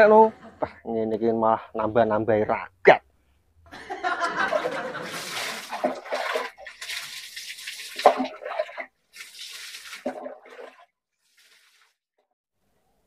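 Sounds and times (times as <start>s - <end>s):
water splashing: 4.2s - 12.0s.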